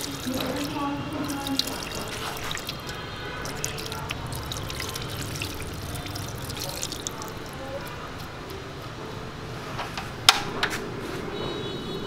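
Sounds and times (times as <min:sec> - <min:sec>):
liquid dripping into pot: 0:00.0 - 0:08.6
hands squelching meat in marinade: 0:00.0 - 0:08.9.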